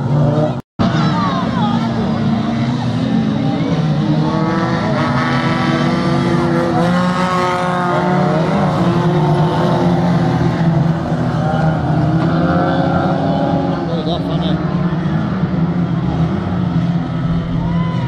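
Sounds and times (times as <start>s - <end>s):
racing car engines passing: 0.0s - 18.0s.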